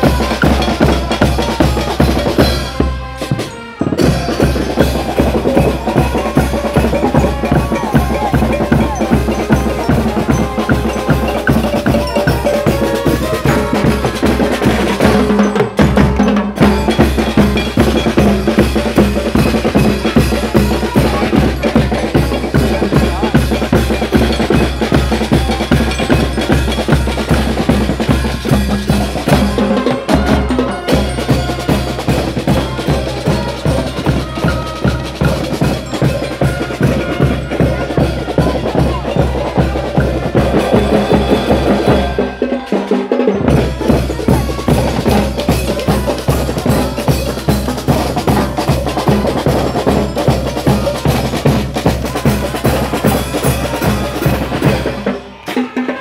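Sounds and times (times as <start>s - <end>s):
bass drums: 0.0s - 42.3s, 43.4s - 55.0s
hand cymbals clashing: 0.0s - 55.0s
snare drums: 0.0s - 56.0s
bell lyre melody: 4.4s - 16.0s.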